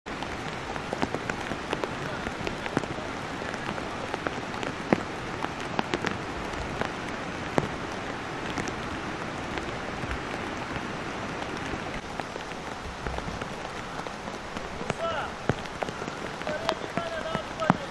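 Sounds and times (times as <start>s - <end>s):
heavy rain hissing: 0.1s - 17.9s
sharp raindrop strikes: 0.1s - 17.9s.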